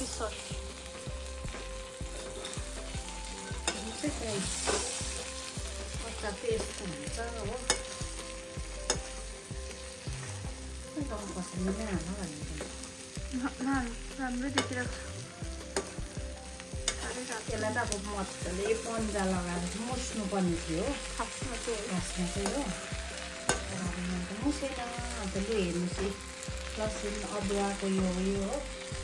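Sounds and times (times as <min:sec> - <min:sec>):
meat sizzling: 0:00.0 - 0:29.0
metal spatula scraping wok: 0:01.7 - 0:10.6.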